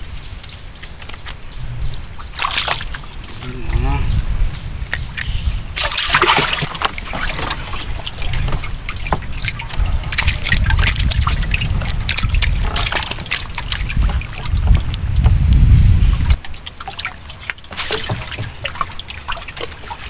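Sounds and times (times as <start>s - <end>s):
water splashing and trickling: 0.0s - 20.0s
low rumble: 1.4s - 5.8s.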